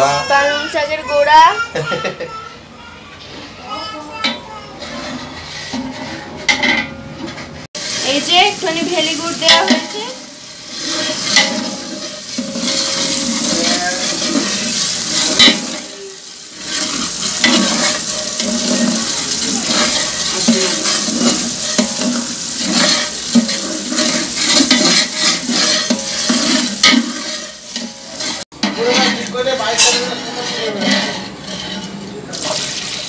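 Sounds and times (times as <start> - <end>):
metal ladle scraping pot: 4.2 - 33.0
spice paste sizzling: 7.8 - 31.4.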